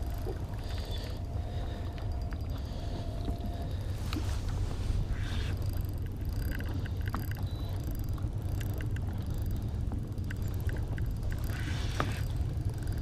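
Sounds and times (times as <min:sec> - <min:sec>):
boat motor humming: 0:00.0 - 0:13.0
light ticks: 0:05.6 - 0:13.0.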